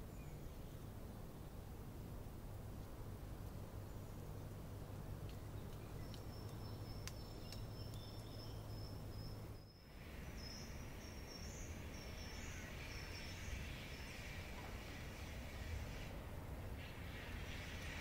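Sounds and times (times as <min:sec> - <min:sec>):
soft hiss: 0:00.0 - 0:18.0
faint clicks: 0:05.2 - 0:08.4.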